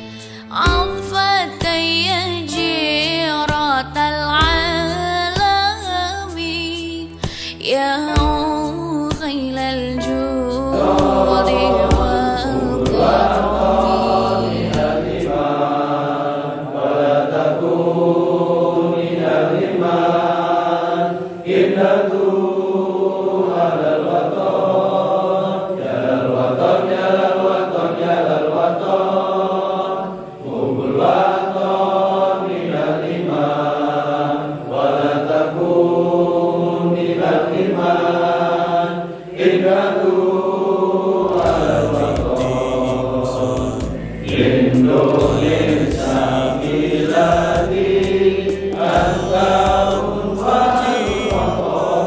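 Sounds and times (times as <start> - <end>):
men singing in unison: 10.7 - 52.0.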